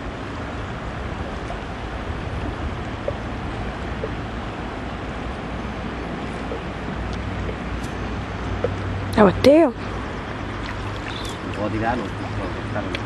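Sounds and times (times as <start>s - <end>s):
wind rumbling on microphone: 0.0s - 9.2s
river water rushing: 0.0s - 13.0s.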